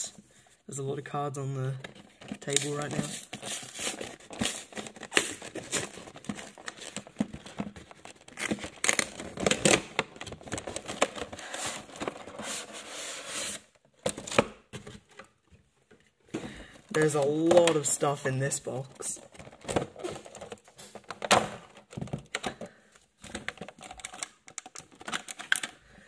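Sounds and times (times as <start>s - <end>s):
packaging tearing and rustling: 2.1s - 14.5s, 19.2s - 22.4s, 23.2s - 25.8s.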